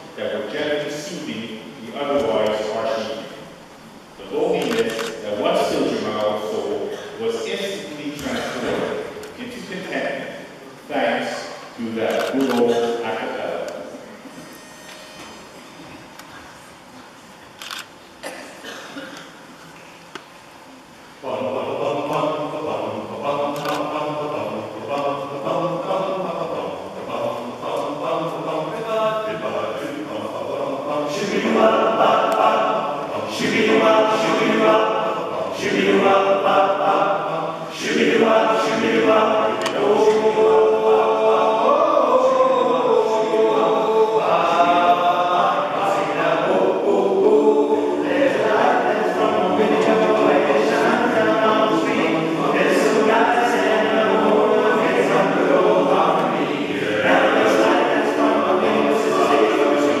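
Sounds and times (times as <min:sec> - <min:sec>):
male choir singing: 0:21.2 - 1:00.0.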